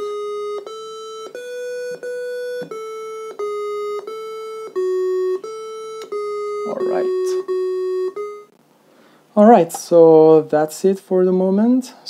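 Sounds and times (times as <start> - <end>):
square-wave chiptune melody: 0.0 - 8.5.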